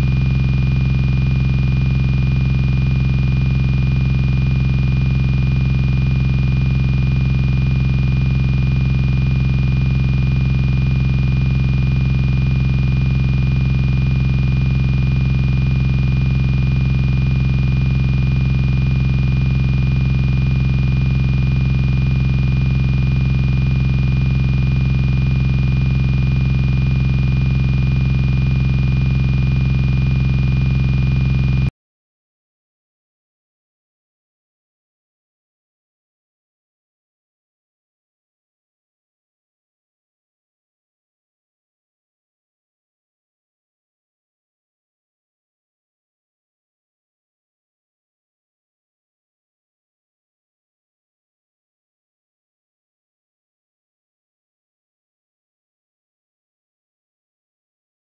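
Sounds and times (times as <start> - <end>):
electronic buzz with high whine: 0.0 - 31.7.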